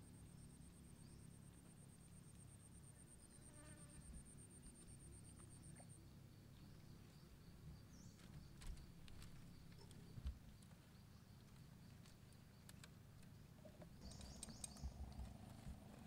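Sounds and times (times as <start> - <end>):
high pulsing insect trill: 14.0 - 15.4.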